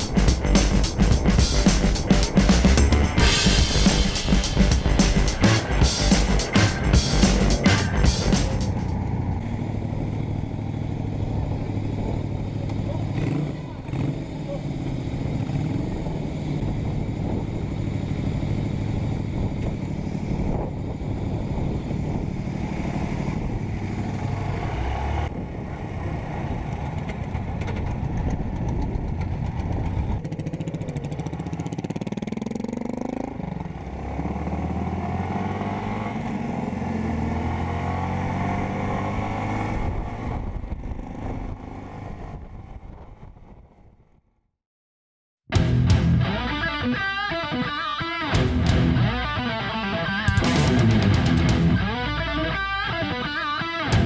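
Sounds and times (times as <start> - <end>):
motorcycle engine accelerating: 0.0 - 43.7, 48.3 - 54.0
wind rush: 16.1 - 24.2, 38.4 - 44.2.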